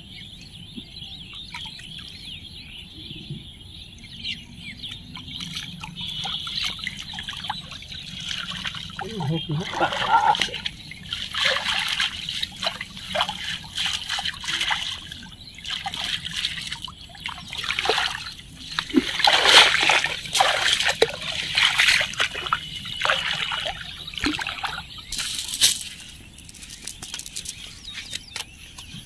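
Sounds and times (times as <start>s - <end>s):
water splashing and dripping: 4.9s - 27.6s
wading steps splashing: 5.3s - 27.3s.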